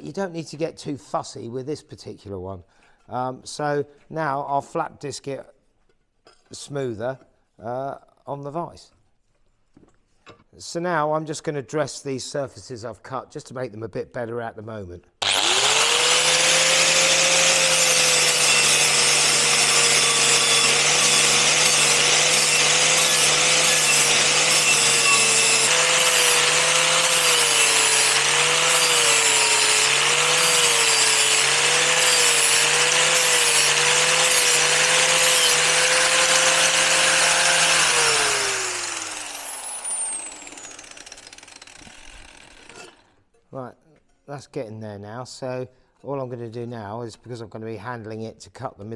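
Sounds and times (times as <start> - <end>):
angle grinder grinding metal: 15.2 - 43.1
grinder winding down: 15.2 - 43.1.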